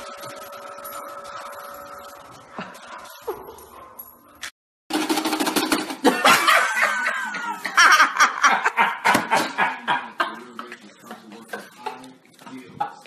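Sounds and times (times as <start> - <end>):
man laughing hard: 6.0 - 10.4.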